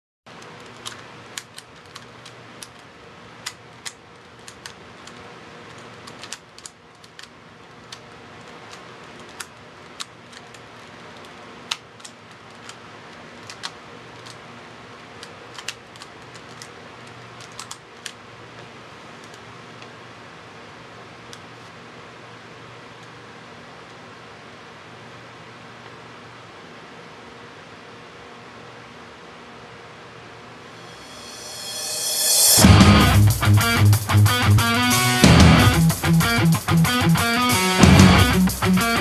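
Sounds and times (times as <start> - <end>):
low room hum: 0.3 - 39.0
plastic puzzle cube clicks: 0.4 - 2.8, 3.4 - 12.8, 13.4 - 14.4, 15.2 - 16.7, 17.4 - 18.2.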